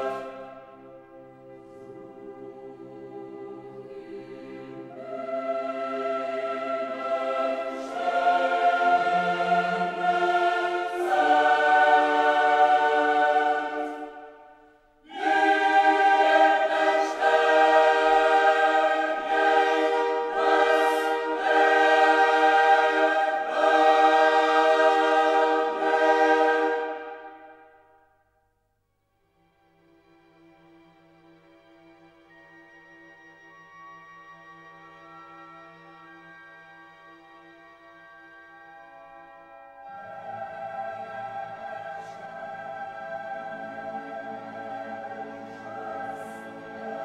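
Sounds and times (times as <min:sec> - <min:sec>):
choir singing held chords: 0:00.0 - 0:28.2, 0:39.3 - 0:47.0.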